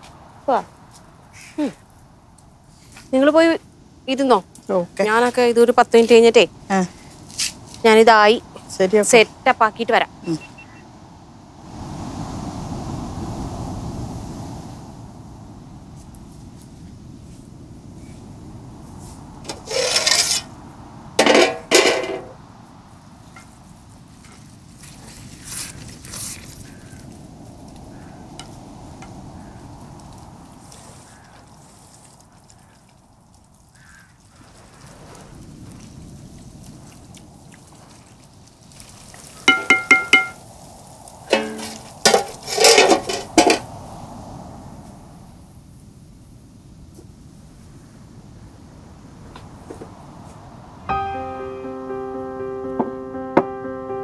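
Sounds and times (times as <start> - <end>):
pot lid scraping: 19.5 - 20.5, 21.2 - 22.4, 41.3 - 43.6
pot lid clanking: 21.2 - 22.4, 39.5 - 40.4, 41.3 - 43.6.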